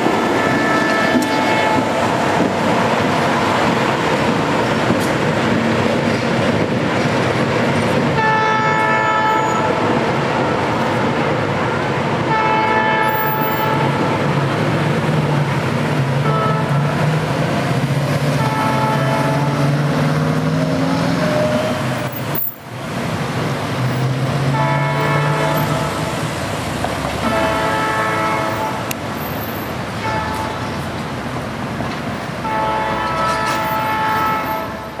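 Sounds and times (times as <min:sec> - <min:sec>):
locomotive engine drone: 0:00.0 - 0:35.0
locomotive air horn blasts: 0:00.3 - 0:02.1, 0:08.2 - 0:09.8, 0:12.2 - 0:14.2, 0:16.2 - 0:17.2, 0:18.3 - 0:20.0, 0:24.4 - 0:26.2, 0:27.2 - 0:29.0, 0:30.0 - 0:30.8, 0:32.4 - 0:35.0.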